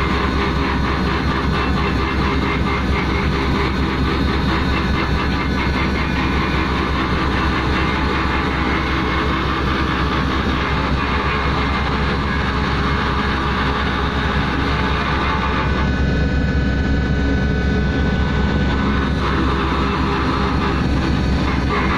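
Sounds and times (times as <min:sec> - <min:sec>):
heavy machinery running: 0:00.0 - 0:21.9.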